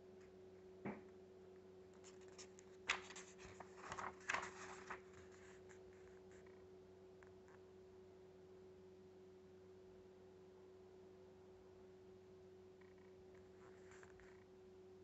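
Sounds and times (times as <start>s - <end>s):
faint steady hum: 0.0s - 15.0s
paper pages rustling: 2.0s - 6.3s.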